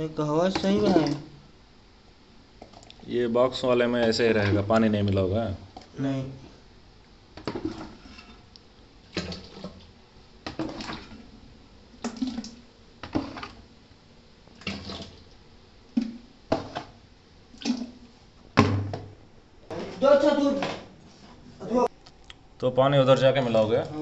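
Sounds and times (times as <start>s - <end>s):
water splashing pours: 9.1s - 9.9s, 10.5s - 11.3s, 12.0s - 13.6s, 14.5s - 15.3s.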